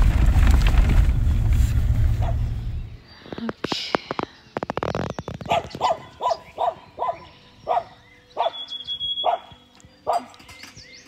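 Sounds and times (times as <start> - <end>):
dog barking: 2.2 - 2.5, 5.5 - 10.4.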